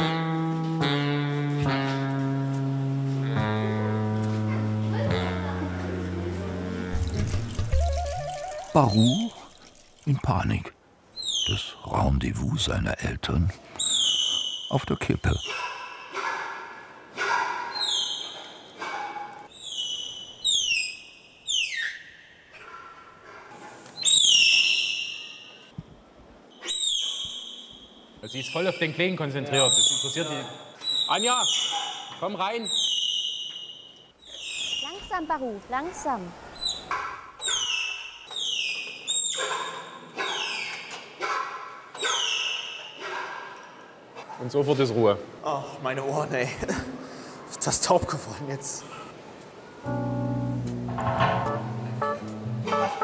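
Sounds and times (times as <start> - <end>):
tapir calf squealing: 6.9 - 9.5
tapir whistling squeals: 13.8 - 15.6, 26.6 - 29.0, 29.6 - 35.2.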